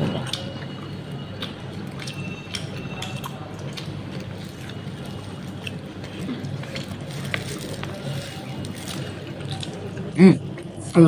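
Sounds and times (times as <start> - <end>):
steady low hum: 0.0 - 11.0
small clicks and crackles: 1.4 - 9.8.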